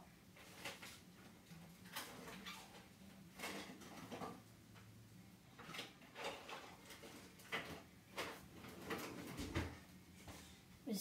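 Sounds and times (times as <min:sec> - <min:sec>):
faint knocks and bumps: 0:05.6 - 0:10.5.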